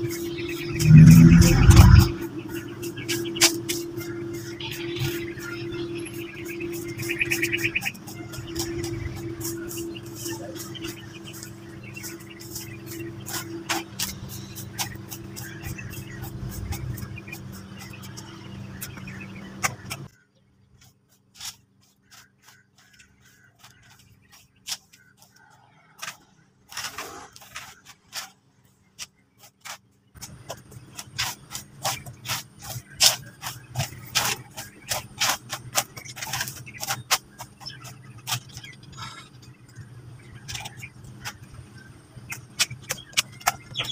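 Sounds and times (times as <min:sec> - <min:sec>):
steady low hum: 0:00.0 - 0:21.0
rake scraping through grass: 0:00.6 - 0:02.2.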